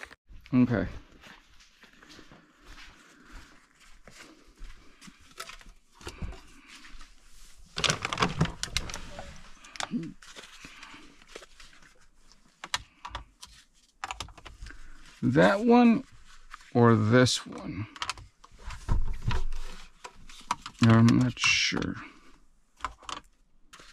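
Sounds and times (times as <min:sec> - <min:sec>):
leather handling clicks and rustles: 0:05.1 - 0:06.4, 0:07.4 - 0:15.2.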